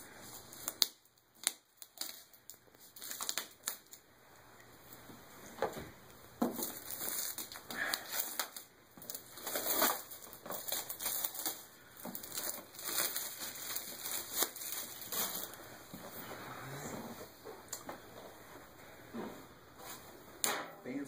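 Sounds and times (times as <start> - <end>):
plastic wrap crinkling and tearing: 0.2 - 4.0, 6.4 - 15.7.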